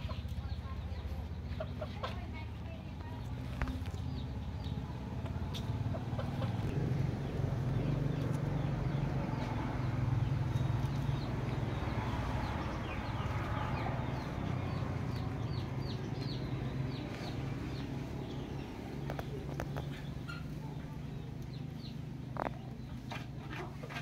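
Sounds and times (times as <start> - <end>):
chick peeping: 0.0 - 2.2, 10.5 - 24.0.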